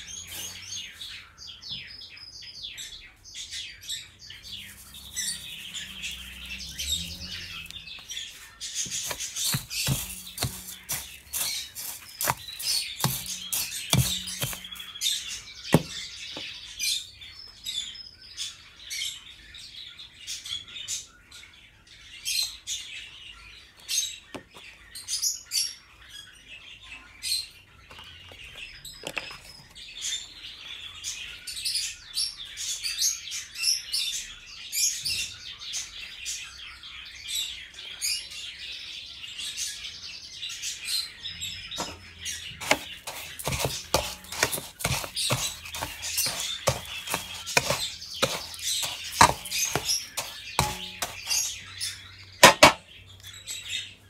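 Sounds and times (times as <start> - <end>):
songbirds chirping: 0.0 - 54.0
seed mix rattling in metal bowl: 9.0 - 15.0, 42.6 - 51.6.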